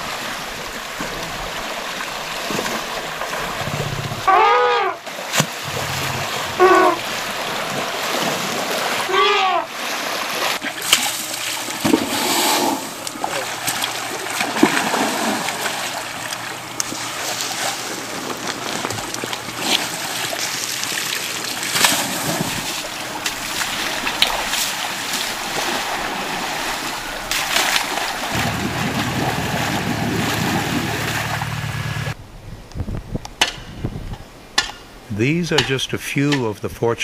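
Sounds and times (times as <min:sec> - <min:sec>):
low steady hum: 0:00.0 - 0:09.7, 0:10.6 - 0:37.0
elephant splashing in water: 0:00.0 - 0:32.2.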